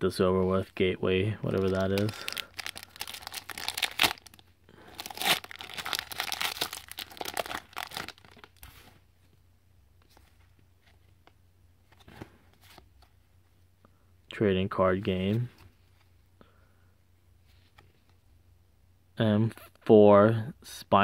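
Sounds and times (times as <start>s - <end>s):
plastic wrapper tearing and crinkling: 1.4s - 8.6s.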